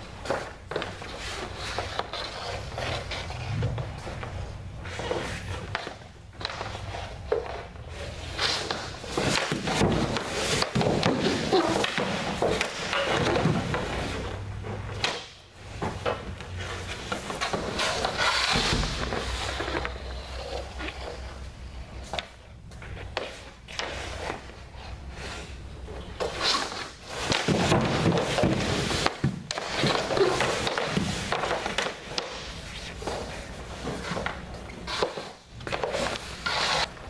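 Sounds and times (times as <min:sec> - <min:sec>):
sticks hitting pucks: 0:00.0 - 0:24.6, 0:25.2 - 0:37.0
skates scraping on synthetic ice: 0:00.2 - 0:14.4, 0:16.6 - 0:21.4, 0:26.2 - 0:37.0
pucks striking goalie gear: 0:08.3 - 0:20.0, 0:26.2 - 0:37.0.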